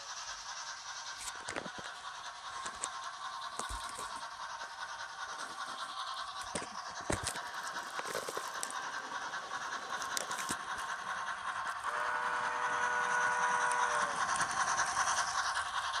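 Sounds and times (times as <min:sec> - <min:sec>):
model locomotive running sounds: 0:00.0 - 0:16.0
wheels rattling on track: 0:00.0 - 0:16.0
multi-note horn: 0:11.9 - 0:13.9.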